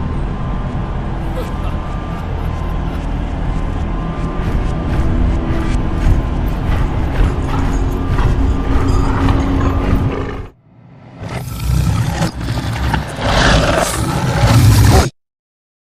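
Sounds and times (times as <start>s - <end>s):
monster roaring and straining: 6.6s - 10.5s, 11.2s - 15.1s.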